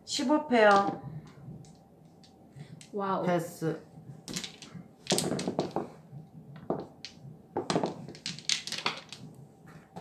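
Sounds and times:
game tiles clacking: 6.6s - 9.3s.

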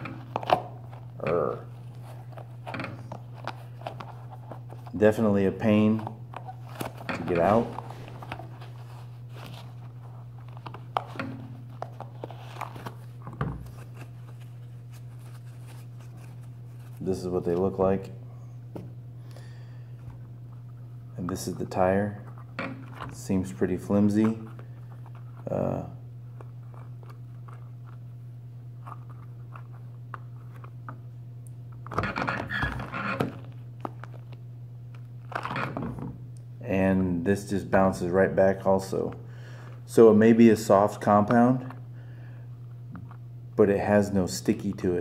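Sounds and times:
steady low hum: 0.0s - 45.0s
rubber tire rubbing and squeaking: 32.0s - 33.4s.

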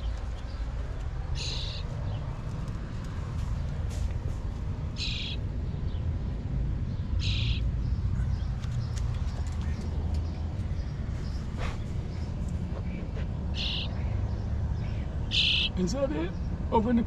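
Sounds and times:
baby bird chirping: 1.4s - 1.9s, 5.0s - 5.4s, 7.2s - 7.6s, 13.6s - 14.0s, 15.3s - 15.8s.

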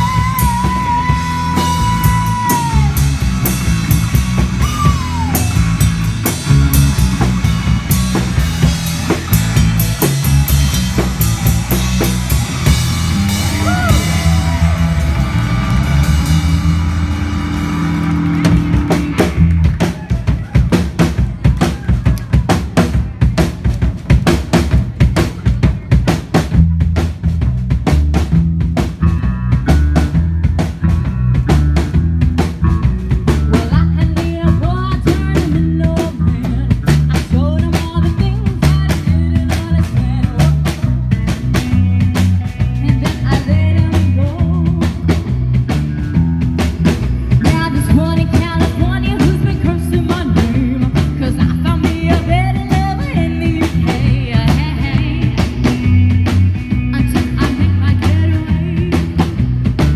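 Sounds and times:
person singing: 0.0s - 3.2s, 33.5s - 41.1s, 42.8s - 45.2s, 47.3s - 59.3s
live rock band playing: 0.0s - 59.9s.

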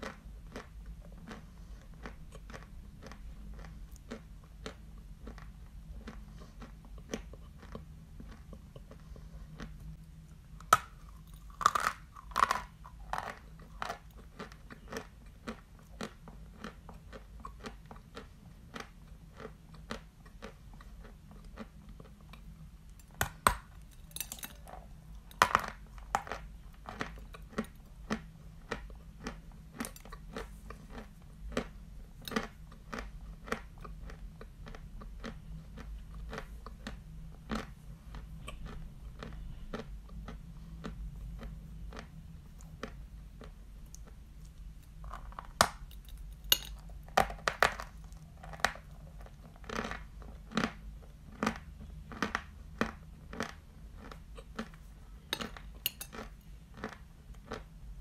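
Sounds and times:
crackly chewing: 0.0s - 57.8s.

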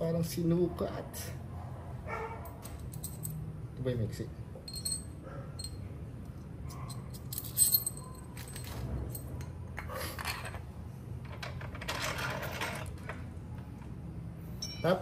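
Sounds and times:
metal clinks: 2.4s - 3.5s, 4.6s - 5.9s, 6.7s - 9.5s.

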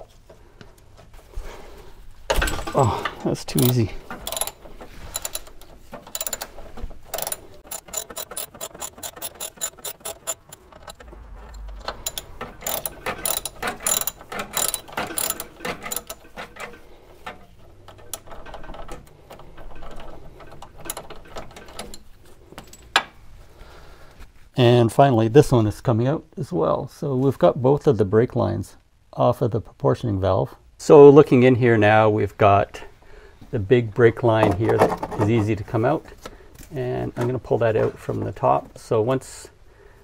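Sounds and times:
socket ratchet clicking: 3.6s - 16.8s.

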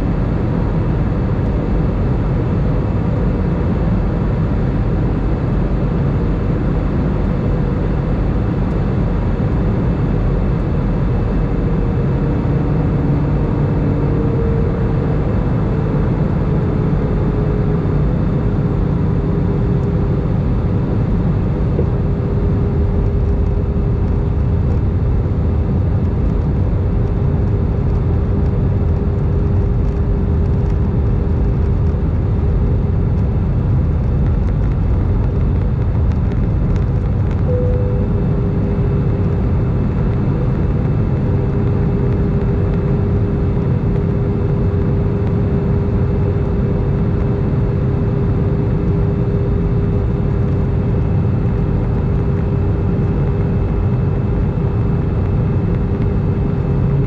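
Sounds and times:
aircraft engines and airflow roar: 0.0s - 57.0s
thin steady hum: 3.2s - 57.0s
brief higher tone: 37.5s - 39.1s.

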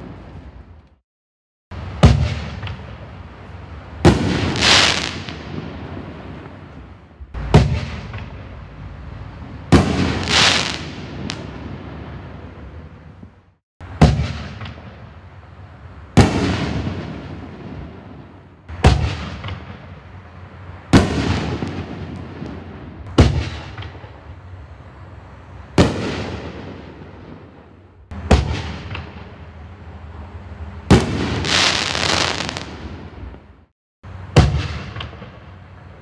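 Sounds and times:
firework crackle: 1.7s - 8.8s, 9.6s - 13.1s, 30.9s - 33.4s.

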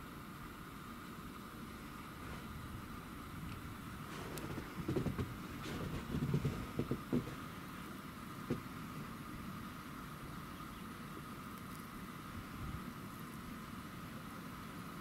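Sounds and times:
steady hiss: 0.0s - 15.0s
footsteps crunching in deep snow: 3.9s - 7.4s.

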